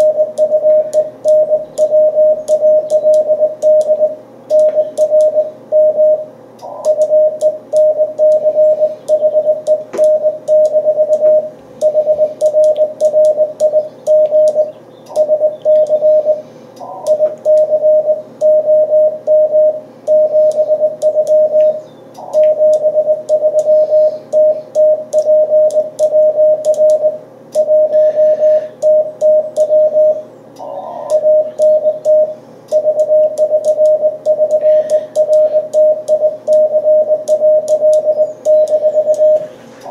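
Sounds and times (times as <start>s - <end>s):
morse code tone: 0.0s - 30.2s, 30.8s - 39.9s
radio band hiss: 16.3s - 17.5s, 39.4s - 39.9s.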